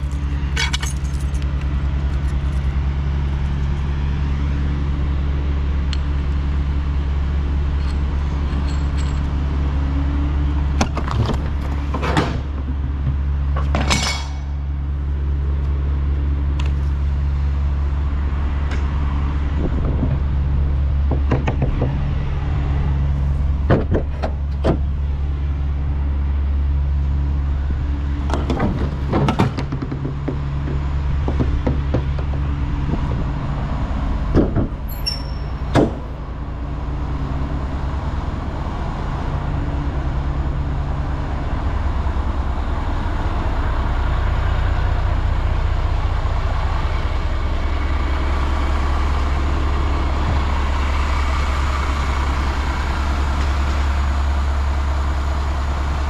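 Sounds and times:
truck diesel engine running: 0.0 - 56.0
sharp knocks and rattles: 10.7 - 14.6, 19.8 - 22.2, 23.6 - 25.0, 28.2 - 33.4, 34.2 - 36.3.

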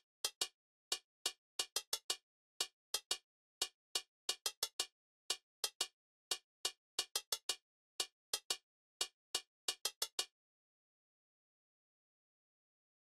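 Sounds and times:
hi-hat ticks: 0.0 - 10.3.

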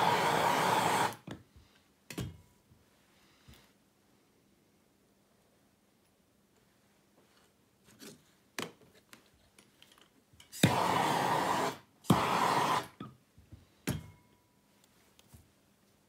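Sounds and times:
gas torch flame hissing: 0.0 - 1.2, 10.6 - 13.0.

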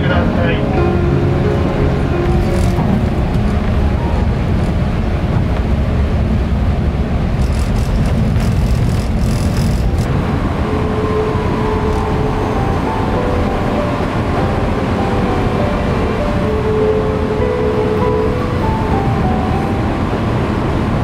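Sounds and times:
train wheels rumbling on rails: 1.4 - 21.0
hiss and clatter: 7.2 - 10.2.

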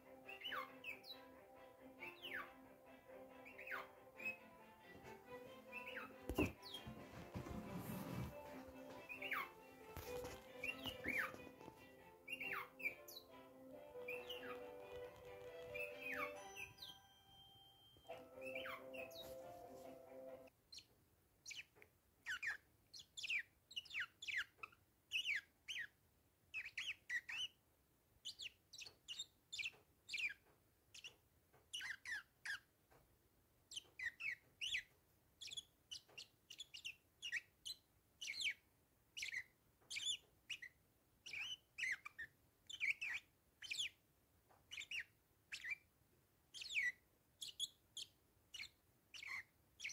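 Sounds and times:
parakeets chirping: 0.0 - 1.3, 2.0 - 2.7, 3.3 - 4.7, 5.3 - 17.2, 18.1 - 19.5, 21.4 - 25.9, 26.6 - 27.6, 28.2 - 32.6, 33.7 - 38.6, 39.2 - 44.0, 44.7 - 45.8, 46.6 - 49.9
music: 0.0 - 20.5.

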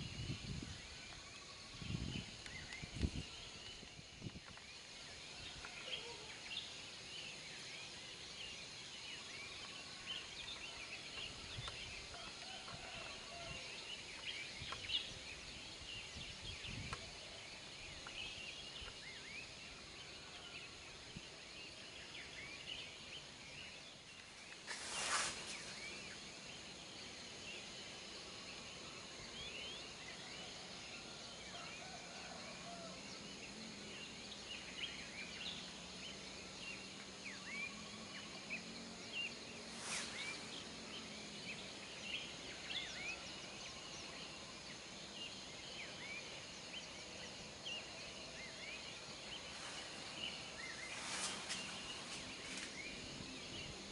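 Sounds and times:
high insect drone: 0.0 - 53.9
short rush of noise: 24.7 - 25.9
birds chirping: 36.7 - 53.9.

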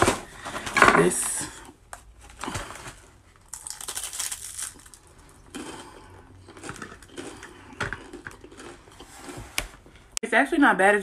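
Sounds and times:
crunching bite of crisp: 3.3 - 9.3
chewing crunch: 3.4 - 9.3.

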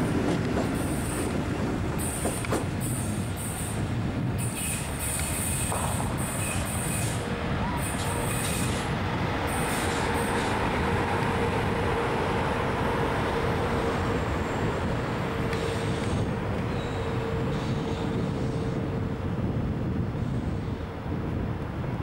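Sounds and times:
train wheels rumbling: 0.0 - 21.8
electric train humming tone: 0.0 - 22.0
high wheel squeaks: 14.1 - 18.7.

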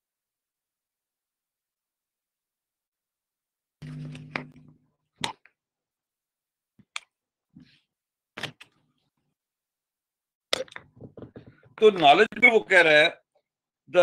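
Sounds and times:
short low hum: 3.8 - 4.8.

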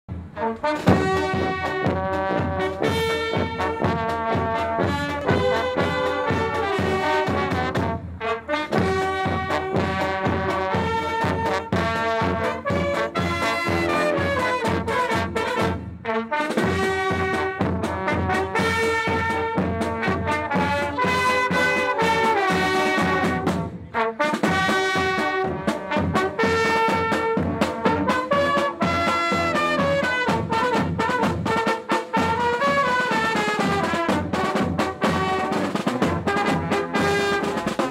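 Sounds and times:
brass marching band playing: 0.1 - 37.9
steady drum beat: 0.1 - 37.9.

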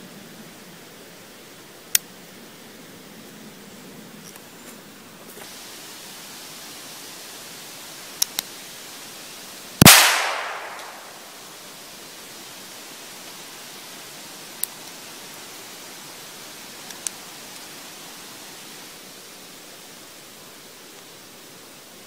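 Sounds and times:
gun clicks: 9.8 - 11.4
gunshot crack with echo: 9.8 - 11.4.

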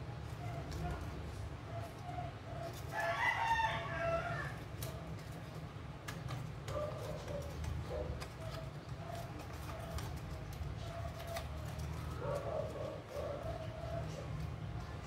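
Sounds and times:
paper being creased: 7.2 - 15.0.

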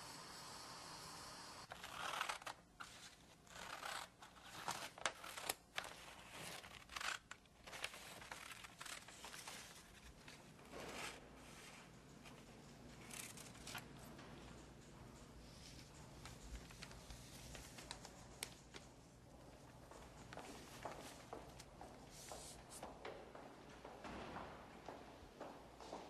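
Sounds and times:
faint steady hiss: 0.0 - 1.7
paper rustling and crinkling: 1.7 - 14.4, 15.7 - 19.2.

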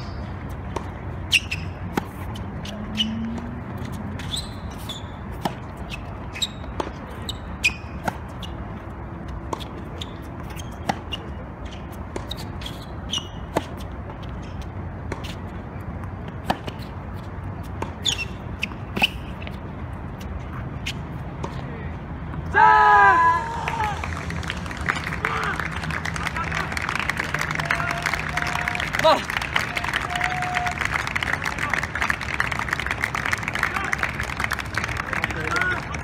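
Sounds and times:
racket striking tennis ball: 0.0 - 8.5, 9.5 - 19.5
shoes squeaking on court: 0.0 - 21.7.

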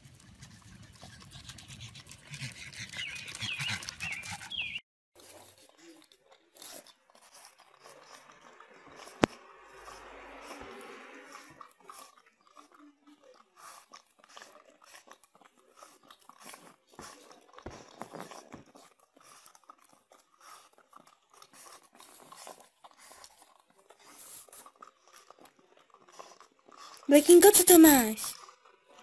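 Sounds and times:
dog licking plastic cup: 11.8 - 26.9.

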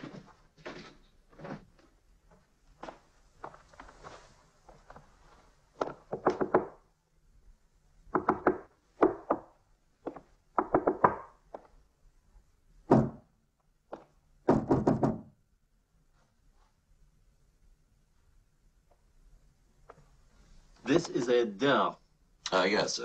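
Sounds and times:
fist knocking on hollow wooden wall: 8.1 - 9.5, 10.6 - 11.3, 12.9 - 13.3, 14.5 - 15.3.

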